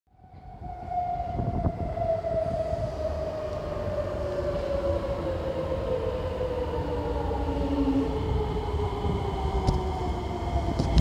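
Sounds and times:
wheels rumbling on rails: 0:00.2 - 0:11.0.

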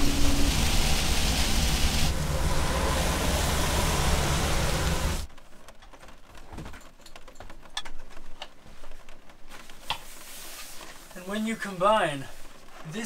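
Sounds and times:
heavy rain: 0:00.0 - 0:05.5
vehicle road noise rumble: 0:00.0 - 0:06.4.

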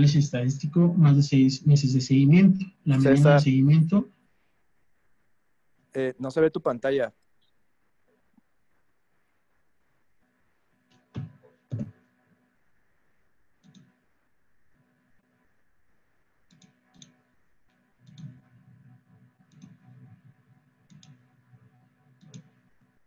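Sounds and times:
faint steady hum: 0:00.0 - 0:23.0
computer mouse clicks: 0:13.6 - 0:14.0, 0:16.5 - 0:17.2, 0:18.0 - 0:18.4, 0:19.5 - 0:19.8, 0:20.9 - 0:21.2, 0:22.2 - 0:22.6.

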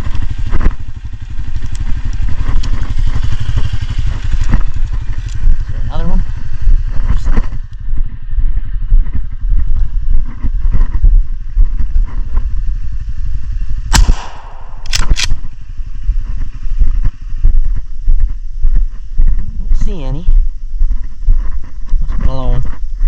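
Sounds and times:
off-road vehicle engine running: 0:00.0 - 0:23.0
sharp crack: 0:13.9 - 0:15.6
quick clicks: 0:14.0 - 0:15.6.

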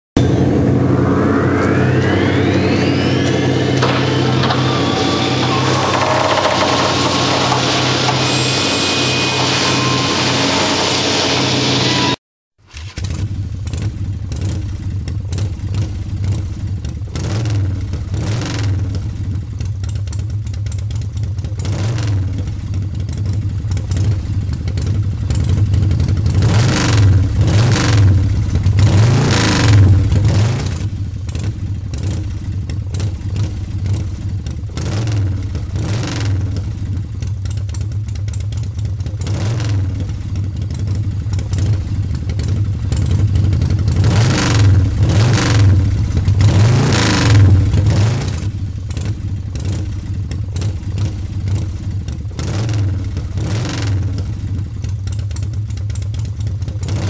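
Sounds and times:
engine droning and revving: 0:00.0 - 0:19.3, 0:21.6 - 0:22.6, 0:25.3 - 0:37.0, 0:39.0 - 0:50.0, 0:52.4 - 0:54.7, 0:56.8 - 0:57.0.

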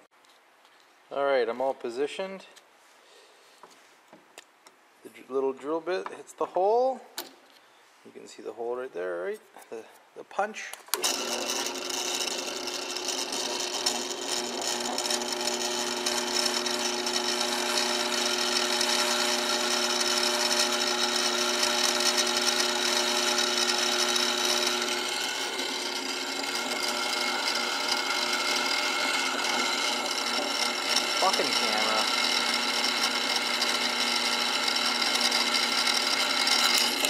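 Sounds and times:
drill press motor hum: 0:10.9 - 0:37.0
drill bit grinding metal: 0:11.0 - 0:37.0.

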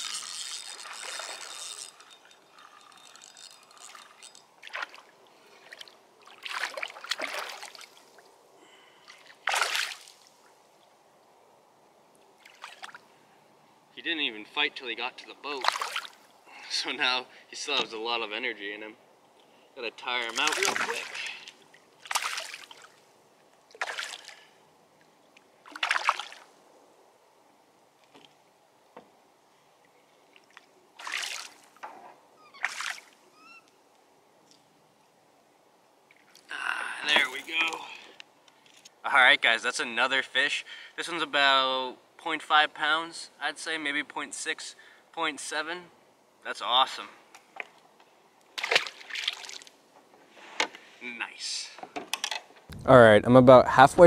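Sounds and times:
fish splashing in water: 0:22.0 - 0:23.0, 0:32.6 - 0:33.2.

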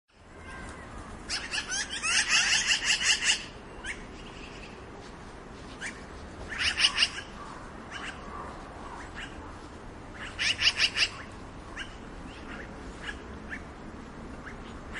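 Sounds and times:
magpie chattering calls: 0:01.3 - 0:04.7, 0:05.8 - 0:09.4, 0:10.1 - 0:13.7, 0:14.4 - 0:14.9.

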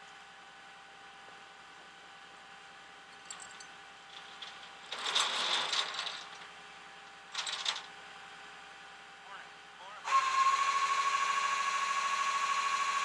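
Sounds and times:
metal clinking and rattling: 0:03.1 - 0:06.5, 0:07.3 - 0:07.9
metal clatter: 0:03.2 - 0:06.5, 0:07.3 - 0:07.9.

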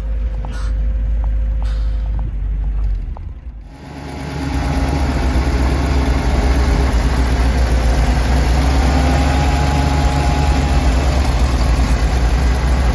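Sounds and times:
truck engine idling: 0:00.0 - 0:12.9.

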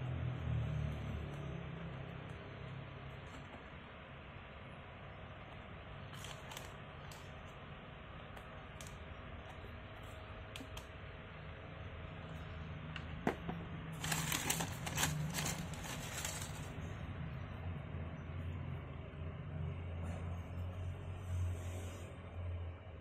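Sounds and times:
tissue paper crinkling: 0:06.1 - 0:06.8, 0:14.0 - 0:16.8.

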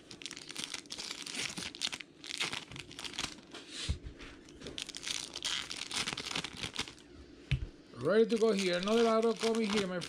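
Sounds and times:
foil wrapper crinkling and tearing: 0:00.0 - 0:03.5, 0:04.6 - 0:07.1, 0:08.2 - 0:10.0.

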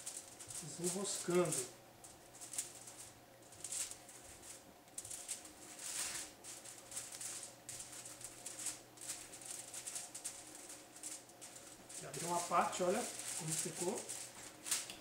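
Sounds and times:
knife slicing meat on foil: 0:11.6 - 0:14.9.

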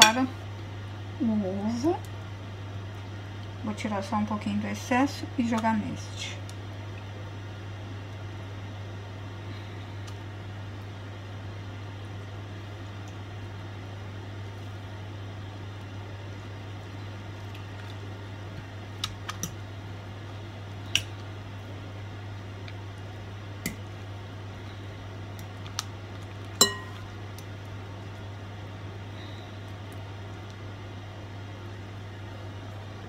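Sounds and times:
steady low hum: 0:00.0 - 0:33.0
fork clinking against glass bowl: 0:26.6 - 0:27.0.

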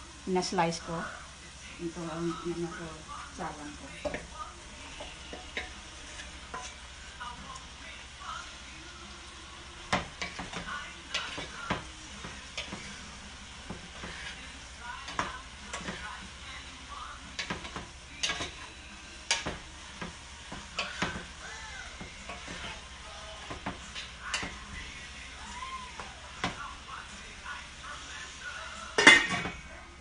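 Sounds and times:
eggplant frying in oil: 0:00.0 - 0:30.0
utensil scraping pan: 0:04.0 - 0:07.0, 0:09.9 - 0:25.1, 0:28.8 - 0:29.6.

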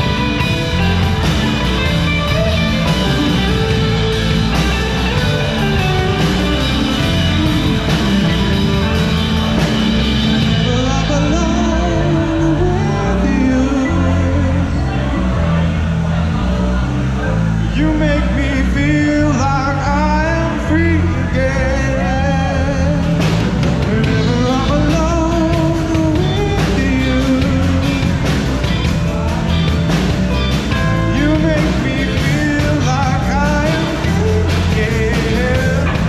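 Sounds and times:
live rock band playing: 0:00.0 - 0:36.0
man singing: 0:02.3 - 0:36.0.

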